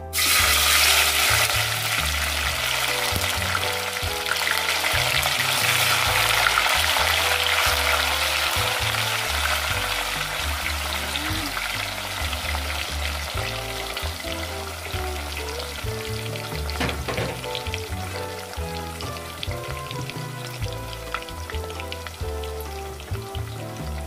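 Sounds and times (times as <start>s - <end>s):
tofu sizzling in hot oil: 0.1s - 24.0s.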